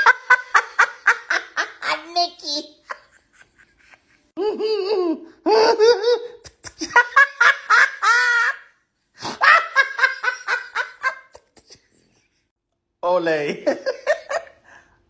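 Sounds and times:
man laughing hard: 2.9 - 11.8.

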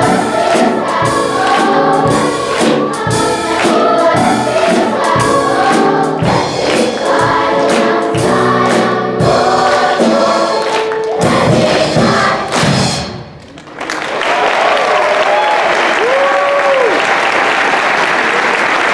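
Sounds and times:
children's choir singing: 0.0 - 13.3
audience applause: 13.4 - 18.9
cheering whoops: 14.1 - 18.9.

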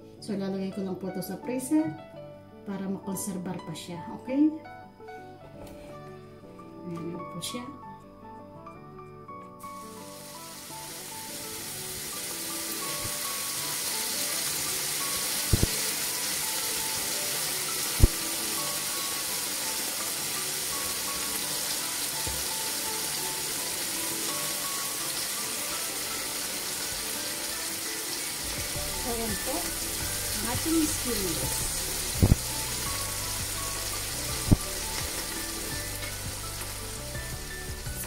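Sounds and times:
soft background music: 0.0 - 38.0
sausages sizzling in a pan: 9.6 - 38.0.

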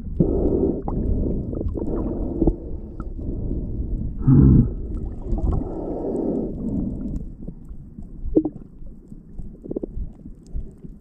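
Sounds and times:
underwater rumble of moving water: 0.0 - 11.0.

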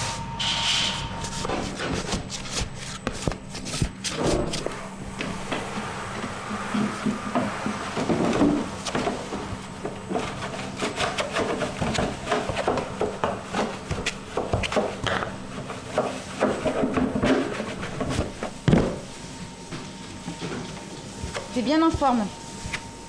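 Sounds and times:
plastic scraper scraping dough: 10.2 - 18.3.

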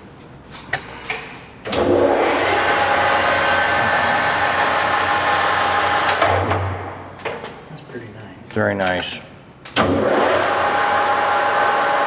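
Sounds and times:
lathe spindle whirring: 1.8 - 6.6, 9.8 - 12.0.

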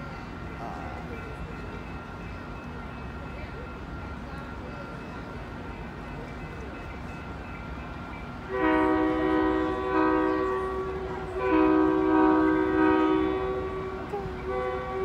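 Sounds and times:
train air horn chord: 8.5 - 15.0.

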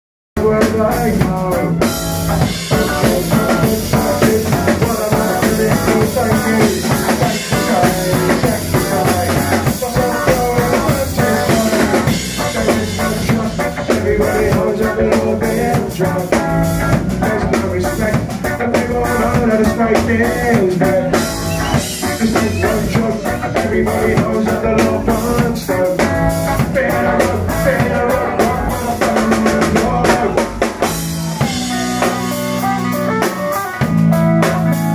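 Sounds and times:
bass guitar: 0.4 - 34.9
drum kit with cymbals: 0.4 - 34.9
electric guitar: 0.4 - 34.9.

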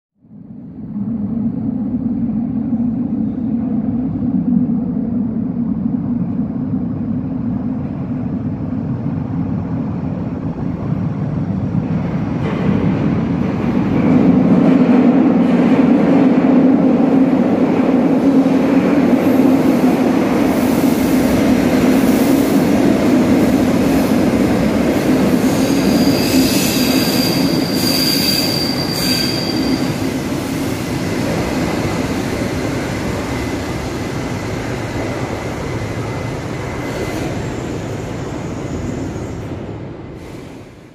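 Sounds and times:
metro train rumbling: 0.2 - 40.9
train brakes squealing: 25.4 - 30.6, 36.6 - 39.6.

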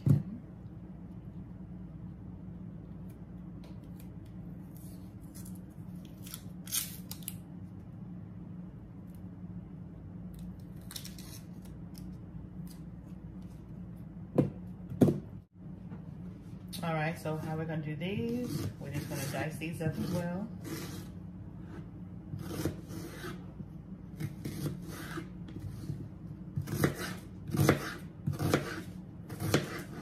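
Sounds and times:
steady low hum: 0.0 - 30.0
knife cutting onion on board: 18.4 - 23.5, 24.1 - 30.0.

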